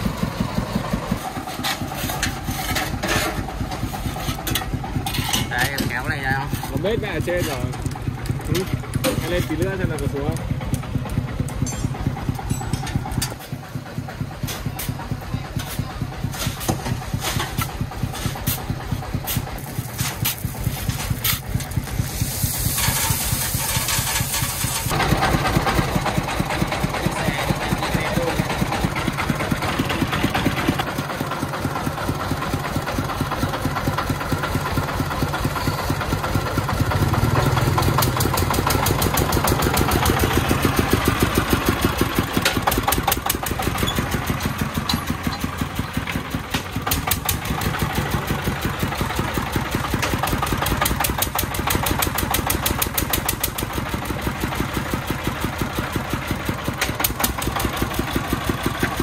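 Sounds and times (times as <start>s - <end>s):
diesel engine running near idle: 0.0s - 59.0s.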